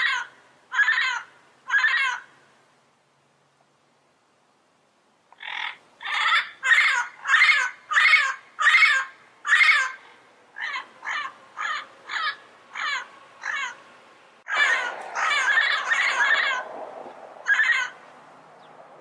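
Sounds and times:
parrot calling: 0.0s - 2.3s, 5.4s - 13.8s, 14.5s - 18.1s.

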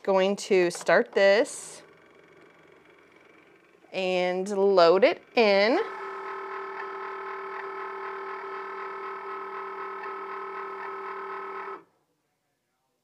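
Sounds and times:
cutting machine motor whine: 1.6s - 11.9s.

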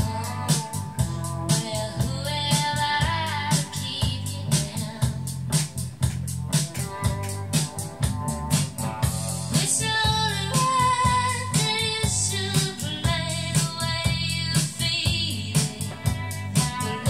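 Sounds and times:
person singing: 0.0s - 5.2s, 9.5s - 17.0s
guitar: 0.0s - 17.0s
steady drum beat: 0.0s - 17.0s.

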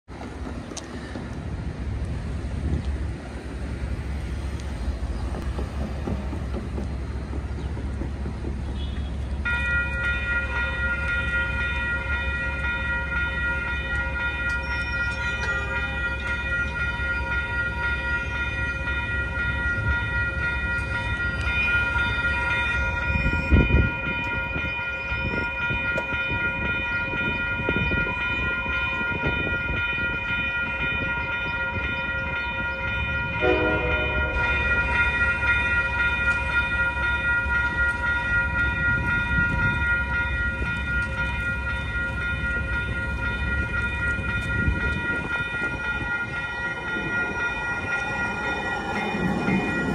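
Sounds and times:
train rumble: 0.0s - 49.9s
crossing bells ringing: 8.8s - 49.9s
train horn blast: 33.4s - 34.7s.

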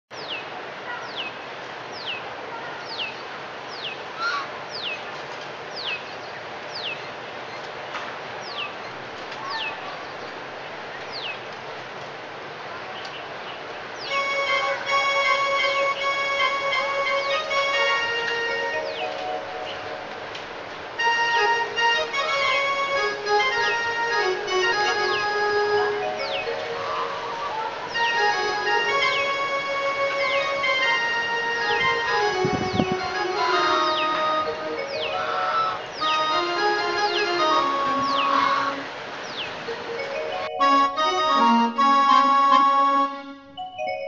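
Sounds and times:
quieter lower bird calls: 0.1s - 7.7s, 8.4s - 11.4s, 13.0s - 20.1s, 24.6s - 31.0s, 31.6s - 39.9s
steady outdoor hiss: 0.1s - 44.0s
electronic keyboard instrumental: 14.1s - 39.0s, 39.6s - 44.0s.

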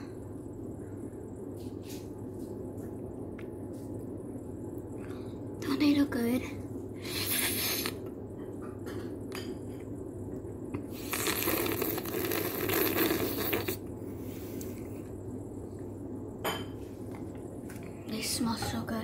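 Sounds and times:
low hum: 0.0s - 11.2s.

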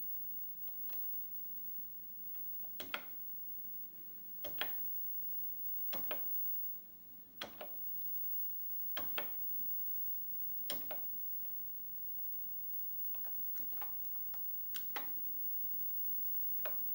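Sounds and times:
faint steady hum: 0.0s - 16.9s
keyboard keys clicking: 4.4s - 4.8s.

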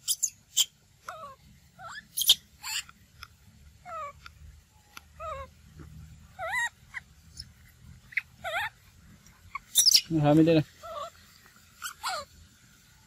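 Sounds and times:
macaque high wavering calls: 0.0s - 3.0s, 3.8s - 4.2s, 5.0s - 5.6s, 6.3s - 12.4s.

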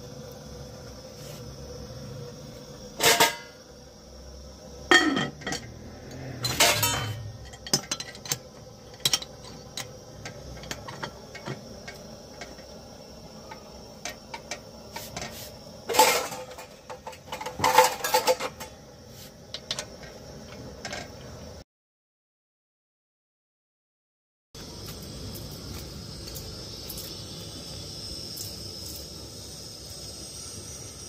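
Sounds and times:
metal lid clinks and scrapes: 3.0s - 3.5s, 4.9s - 5.7s, 6.4s - 12.6s, 14.0s - 18.8s.

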